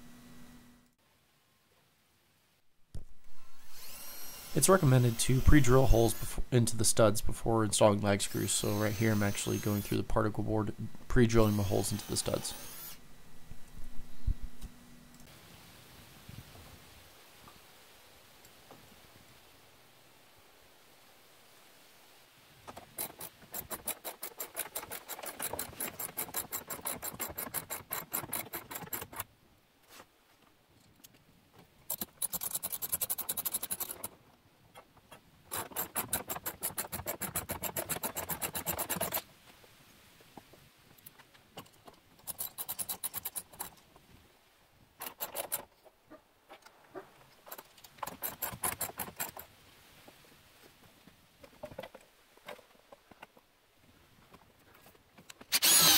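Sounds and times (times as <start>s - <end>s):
ratchet wrench clicking rapidly: 31.9s - 34.1s, 35.6s - 39.2s, 42.3s - 43.7s, 55.5s - 55.9s.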